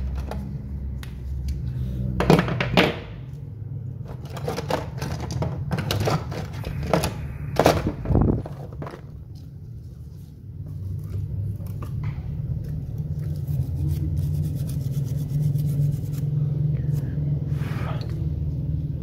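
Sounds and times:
low hum: 5.7s - 19.0s
toothbrush scrubbing circuit board: 13.3s - 16.3s.

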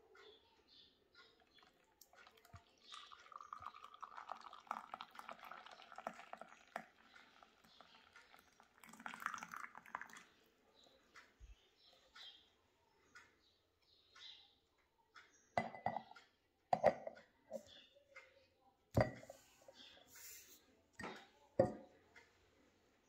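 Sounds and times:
coffee pouring into glass cup: 1.4s - 10.4s.

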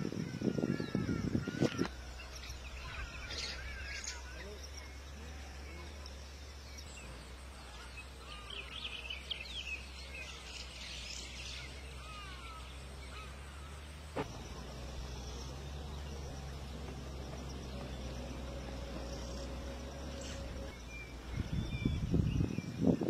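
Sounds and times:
birds chirping: 0.0s - 23.0s
steady low rumble: 11.7s - 23.0s.

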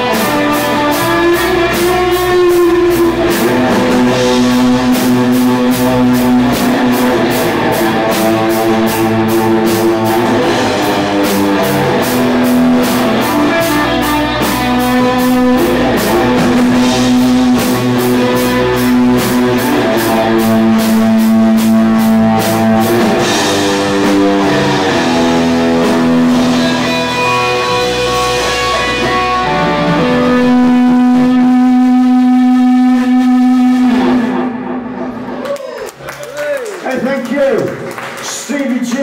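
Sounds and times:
drum kit cymbal beat: 0.0s - 34.2s
electric guitars sustained notes: 0.0s - 35.5s
bass guitar: 0.0s - 36.0s.

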